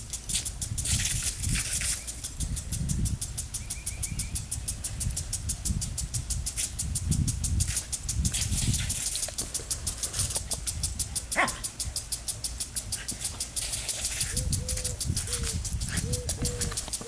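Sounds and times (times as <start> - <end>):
lawn sprinkler ticking: 0.0 - 17.0
dogs barking and yipping: 9.5 - 17.0
dog yelping: 11.3 - 11.7.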